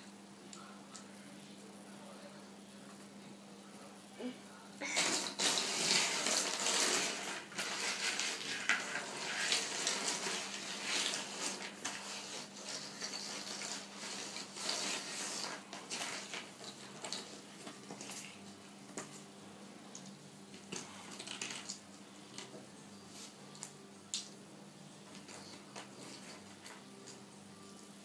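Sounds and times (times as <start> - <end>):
plastic figures clattering: 20.6 - 21.8.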